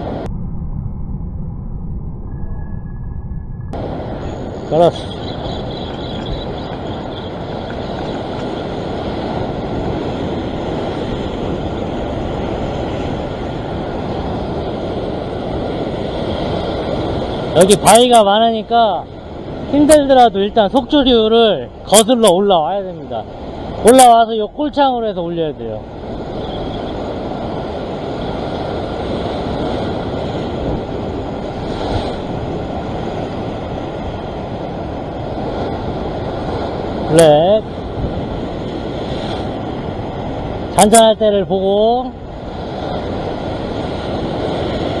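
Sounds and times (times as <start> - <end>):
surf breaking over rocks: 3.8 - 45.0.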